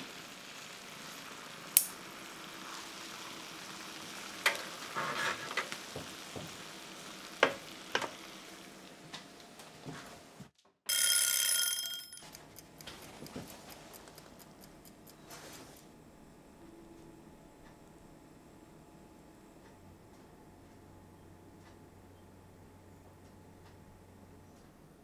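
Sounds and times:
food sizzling in a frying pan: 0.0s - 9.0s
kitchen timer bell ringing: 10.9s - 12.4s
kitchen timer ticking: 10.9s - 15.2s.

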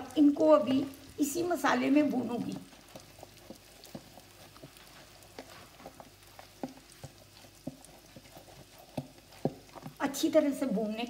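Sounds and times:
frying sizzle: 0.0s - 11.0s
wooden spatula knocking in pan: 2.6s - 10.2s.

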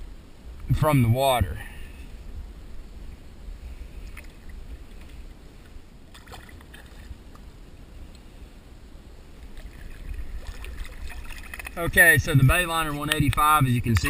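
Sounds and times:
low microphone rumble: 0.0s - 6.1s
water lapping and splashing: 3.7s - 7.6s, 9.3s - 13.4s.

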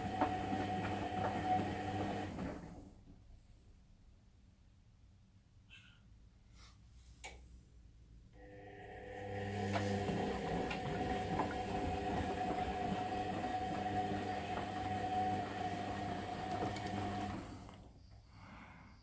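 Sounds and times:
washing machine motor hum: 0.0s - 3.0s, 8.4s - 17.9s
wet laundry sloshing: 9.6s - 17.6s.

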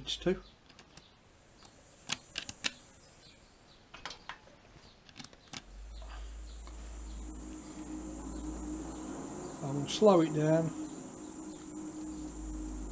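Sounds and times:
milling machine motor humming: 5.7s - 12.9s.

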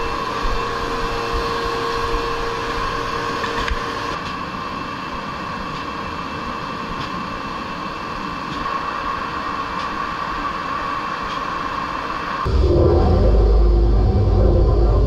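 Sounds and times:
steady hum: 12.5s - 15.0s.

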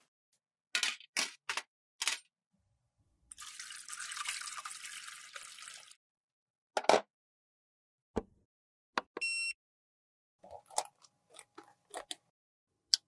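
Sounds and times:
liquid pouring into metal dish: 3.3s - 6.0s.

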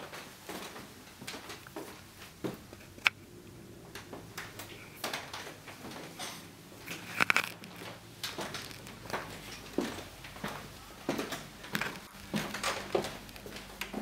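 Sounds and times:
footsteps on parquet floor: 7.7s - 14.0s.

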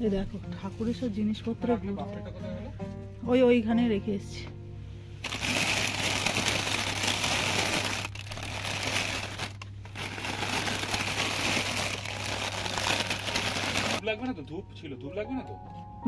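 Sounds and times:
plastic bags crinkling: 5.2s - 14.0s.

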